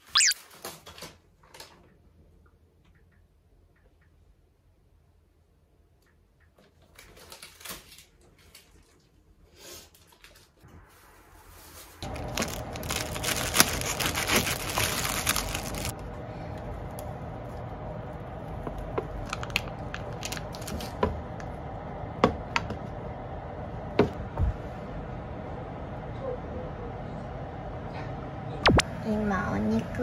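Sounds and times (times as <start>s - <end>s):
crinkling tearing rustle: 6.9s - 9.1s, 9.9s - 16.0s, 19.2s - 21.0s.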